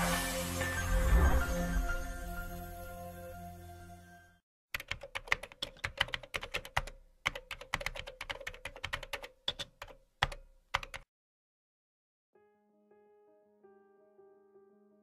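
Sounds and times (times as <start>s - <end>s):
keyboard key clicks: 4.8s - 11.1s.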